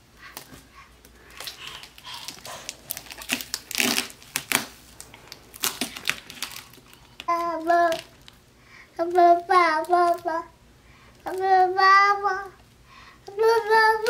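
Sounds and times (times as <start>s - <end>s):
tape and cardboard crinkling: 1.3s - 8.4s, 9.1s - 10.4s.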